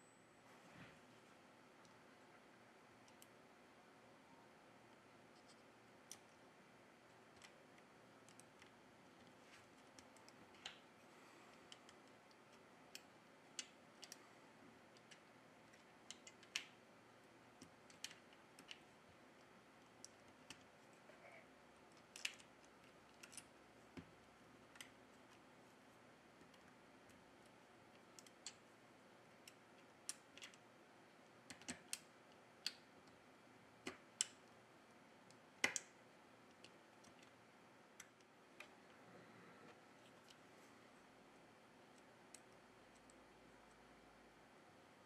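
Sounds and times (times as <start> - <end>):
low hiss: 0.0 - 45.0
small connector clicks and taps: 35.3 - 35.9.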